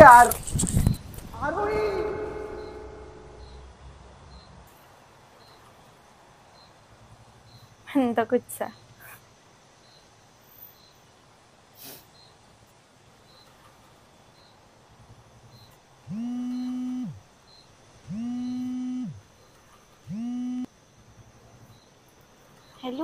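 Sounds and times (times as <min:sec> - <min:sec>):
phone vibrating: 0:01.5 - 0:03.6, 0:16.1 - 0:17.2, 0:18.0 - 0:19.2, 0:20.1 - 0:20.7.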